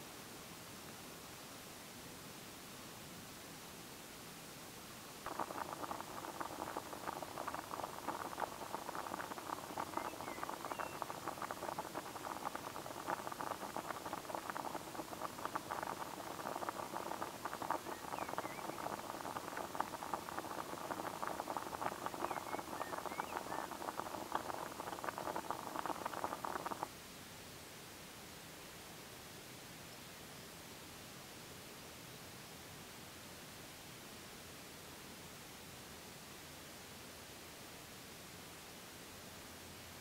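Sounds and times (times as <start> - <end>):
water boiling in a pot: 5.2 - 27.0.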